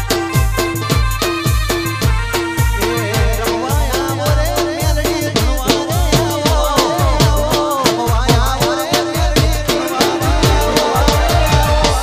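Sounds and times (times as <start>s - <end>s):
electronic drum beat: 0.0s - 12.0s
wavering melody: 9.7s - 12.0s.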